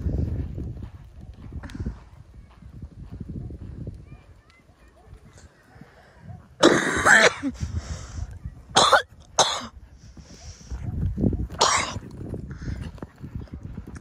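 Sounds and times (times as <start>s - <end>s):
person coughing: 6.6s - 7.6s, 8.8s - 9.7s, 11.6s - 12.0s.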